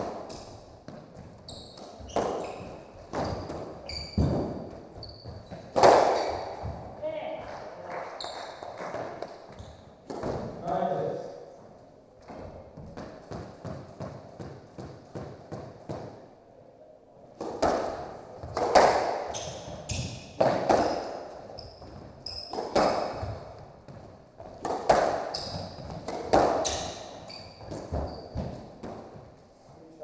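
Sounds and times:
squash ball cracking off walls: 0.0 - 6.9, 10.0 - 10.6, 17.4 - 29.2
shoes squeaking on wooden floor: 0.2 - 7.4, 8.1 - 10.8, 19.2 - 30.0.

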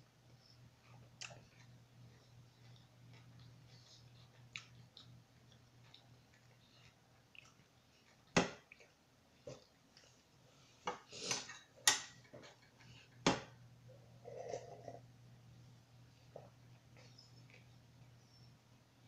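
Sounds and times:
crunching while chewing: 0.5 - 10.2.

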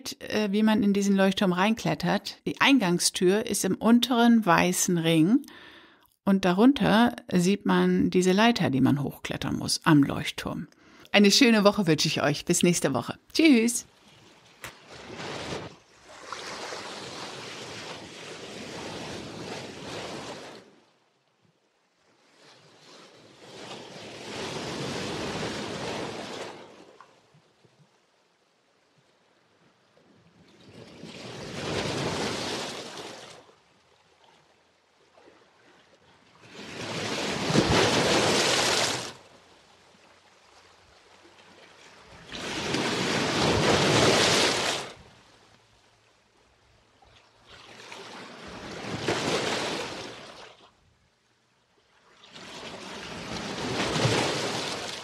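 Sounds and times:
sea waves surging: 14.8 - 20.8, 23.3 - 26.9, 31.0 - 33.4, 36.4 - 39.2, 41.9 - 45.0, 47.8 - 50.4, 52.4 - 55.0.

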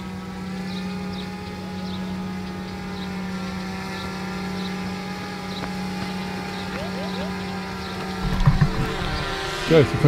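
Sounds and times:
drone propeller hum: 0.0 - 10.0
faint high chirps: 6.6 - 7.7.

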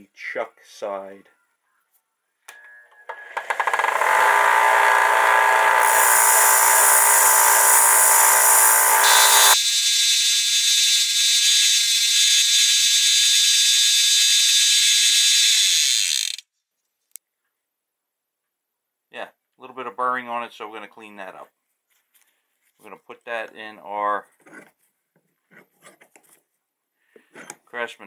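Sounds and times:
belt sander running: 3.4 - 9.6
steel grinding on sander belt: 3.4 - 16.4.

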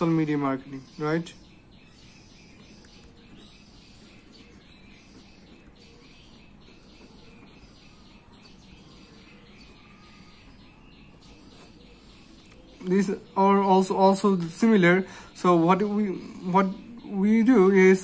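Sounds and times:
pen scratching on paper: 2.2 - 12.4.

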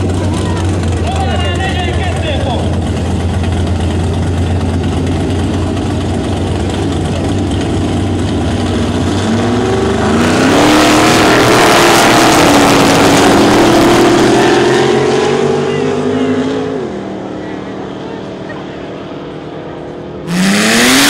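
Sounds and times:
car engines idling: 0.0 - 21.0
cars accelerating roar: 0.0 - 21.0.

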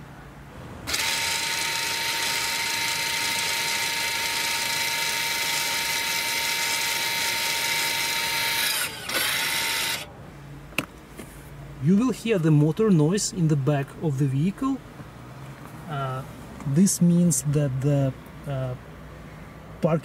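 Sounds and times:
brake motor whining: 0.8 - 10.1.

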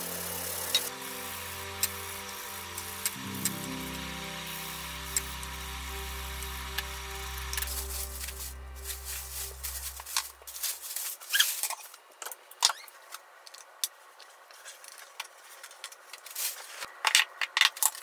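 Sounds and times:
plastic bag crinkling: 7.3 - 11.9.

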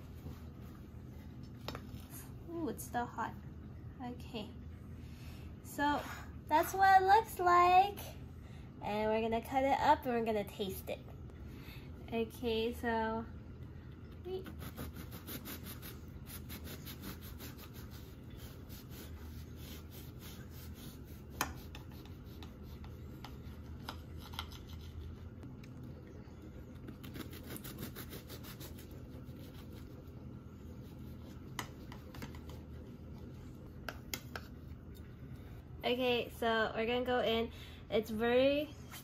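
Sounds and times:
knife sawing through bread: 14.5 - 23.0, 27.0 - 30.0.

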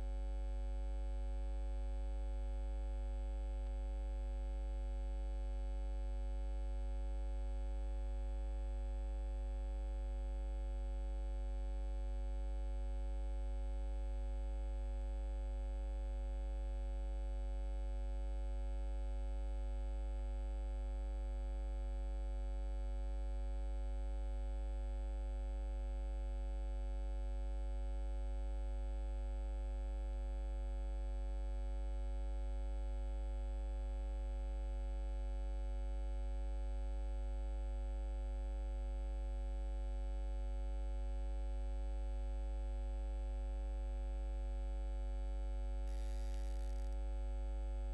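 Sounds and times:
electrical hum: 45.9 - 47.9.

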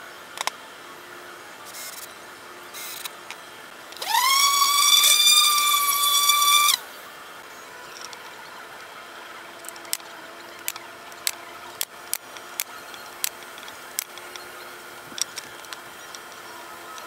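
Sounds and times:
pneumatic nailer firing: 4.0 - 6.8.

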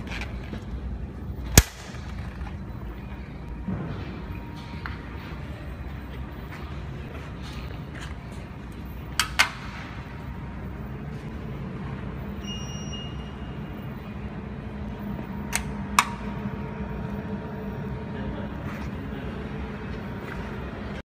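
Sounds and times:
machine humming: 0.0 - 21.0
brief high beep: 12.4 - 13.5.

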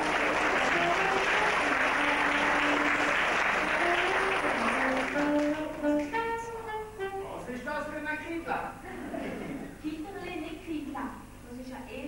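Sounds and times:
audience applauding: 0.0 - 6.4
live band playing: 0.0 - 8.0.

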